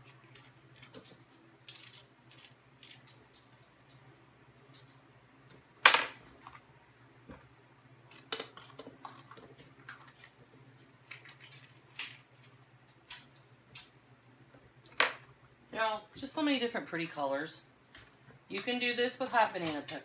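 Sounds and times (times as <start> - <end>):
low steady hum: 0.0 - 20.0
knife cutting peppers: 18.6 - 20.0.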